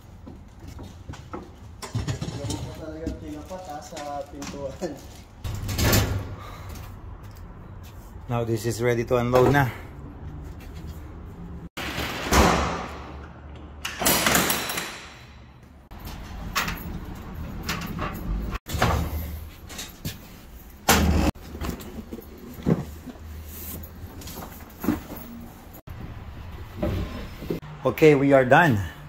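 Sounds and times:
sharp clanks and thumps: 0:00.3 - 0:02.8.

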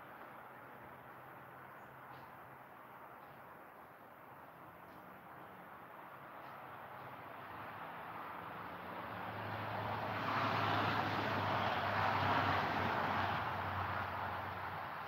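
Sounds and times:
motor vehicle passing by: 0:06.1 - 0:15.0.

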